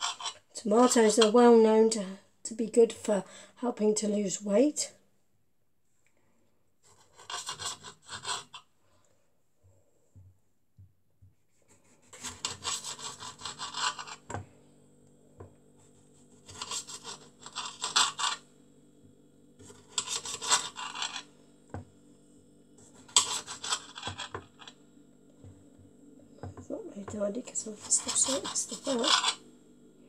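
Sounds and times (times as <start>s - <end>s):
knife sawing through tomatoes: 6.8s - 8.6s, 11.7s - 14.2s, 16.2s - 18.4s, 19.6s - 21.2s, 22.8s - 24.4s, 27.6s - 29.4s.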